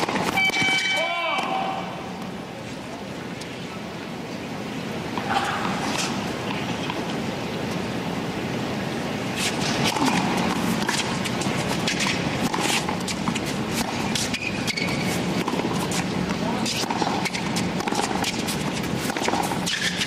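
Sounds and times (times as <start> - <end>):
racquet striking tennis ball: 0.0 - 1.8, 9.4 - 20.0
shoe squeaks: 0.2 - 1.0, 11.2 - 16.1, 19.6 - 20.0.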